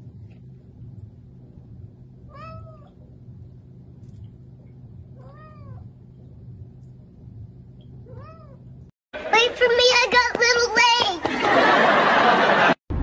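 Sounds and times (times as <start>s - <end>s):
steady low hum: 0.0s - 13.0s
cat meowing: 2.3s - 3.0s, 5.2s - 5.9s, 8.0s - 8.6s.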